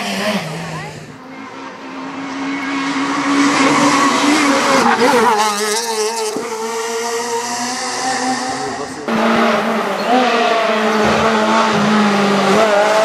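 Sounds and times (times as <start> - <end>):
rally car engine passing: 0.0 - 13.0.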